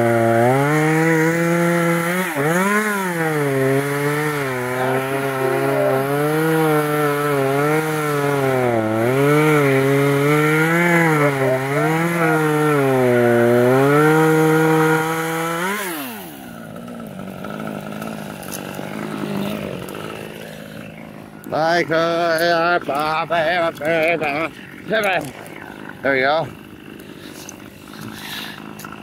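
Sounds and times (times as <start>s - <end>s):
chainsaw cutting wood: 0.0s - 29.0s
chainsaw idling: 0.0s - 29.0s.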